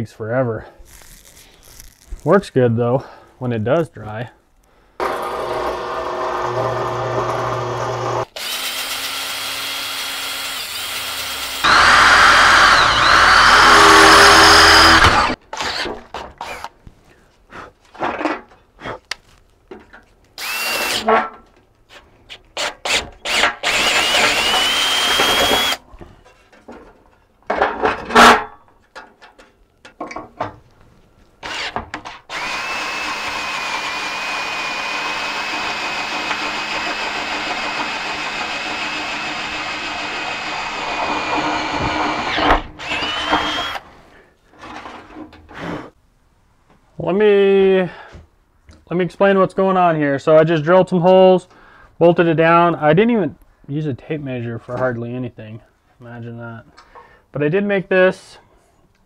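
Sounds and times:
drill press cutting steel: 5.0s - 15.4s, 23.3s - 25.8s, 31.5s - 43.8s
cordless drill bursts: 5.0s - 16.7s, 20.4s - 21.1s, 22.6s - 25.8s, 31.4s - 43.8s.

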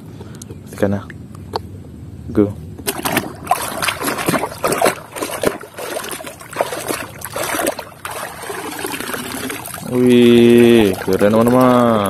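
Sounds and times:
water splashing and sloshing: 2.8s - 12.0s.

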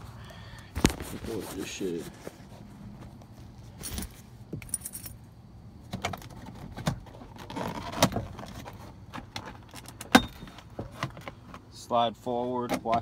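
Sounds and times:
camera handling rustle: 0.7s - 1.3s.

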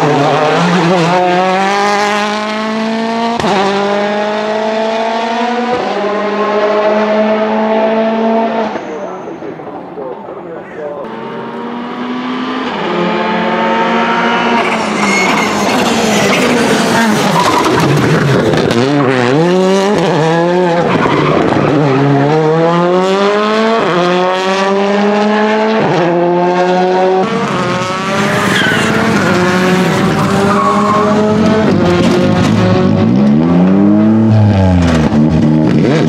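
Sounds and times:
rally car engine accelerating: 0.0s - 10.4s, 11.0s - 36.0s
tyre squeal: 14.5s - 18.0s, 28.3s - 29.4s.

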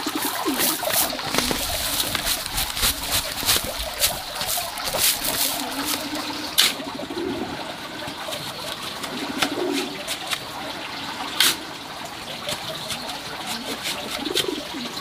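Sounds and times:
soil pouring and pattering: 0.0s - 6.8s.

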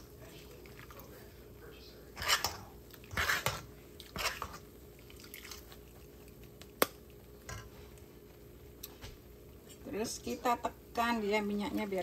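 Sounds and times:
spoon scraping in wire strainer: 2.2s - 4.6s.

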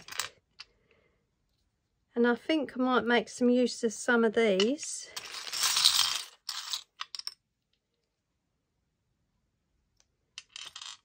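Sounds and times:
small plastic pieces clattering: 4.6s - 7.4s, 10.4s - 11.0s.

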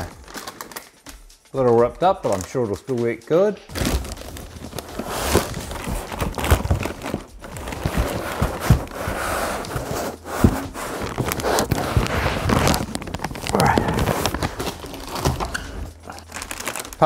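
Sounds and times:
cardboard box rubbing: 3.7s - 16.8s
plastic bag crinkling: 3.7s - 17.0s.

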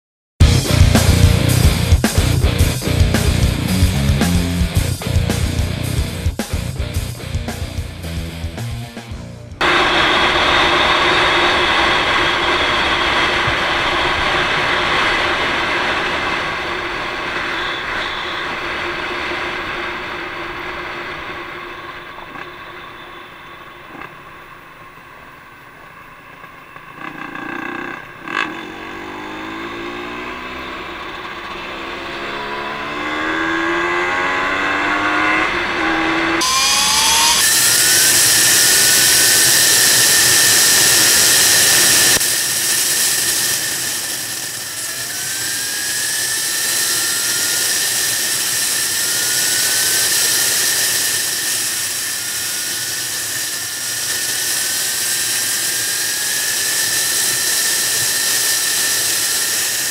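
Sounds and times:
motorcycle engine shifting gears: 9.6s - 53.5s.

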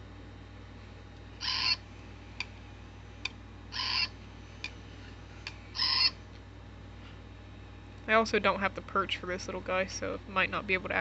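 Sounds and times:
robot bird electronic calls: 1.4s - 1.8s, 3.7s - 4.2s, 5.7s - 6.2s.

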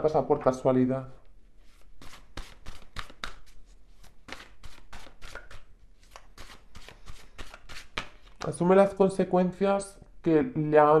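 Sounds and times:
cards being shuffled: 1.6s - 8.6s.

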